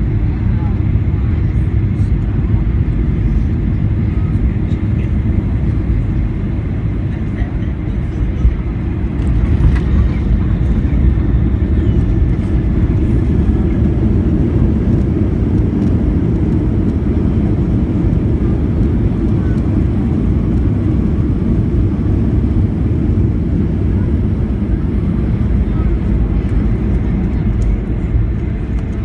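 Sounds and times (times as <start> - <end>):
low rumble of engines and wheels: 0.0 - 29.0.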